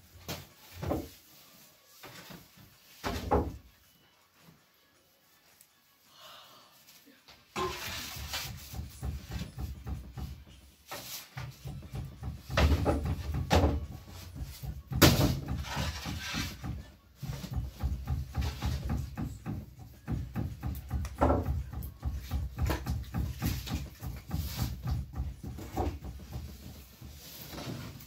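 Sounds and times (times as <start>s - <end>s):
wooden peel knocking on clay oven: 7.6s - 28.0s.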